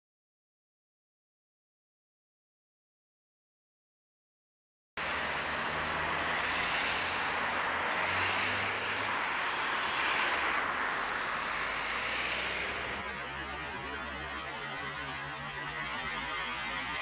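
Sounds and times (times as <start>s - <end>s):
car passing close: 5.0s - 16.2s
road traffic hiss: 5.0s - 17.0s.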